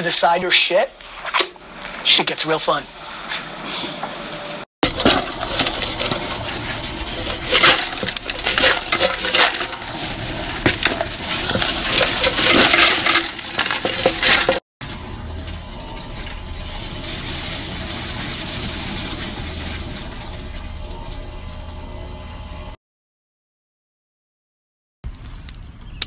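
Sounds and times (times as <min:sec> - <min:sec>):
coins clattering: 0:04.8 - 0:20.7
coin counting mechanism running: 0:04.8 - 0:22.2.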